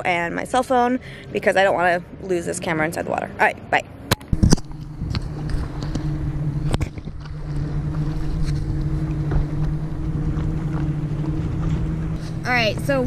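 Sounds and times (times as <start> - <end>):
motorboat engine hum: 0.0 - 13.0
wind noise: 4.1 - 13.0
water splashing: 4.3 - 13.0.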